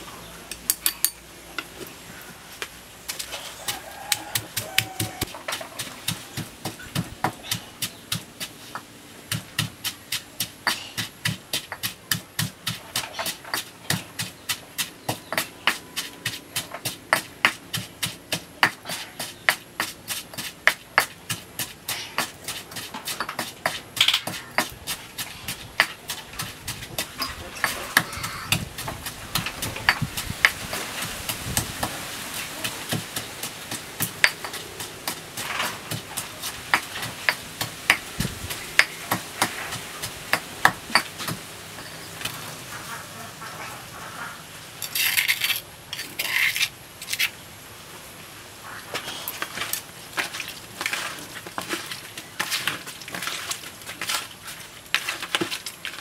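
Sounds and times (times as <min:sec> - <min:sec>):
pestle pounding in stone mortar: 0:03.2 - 0:42.4.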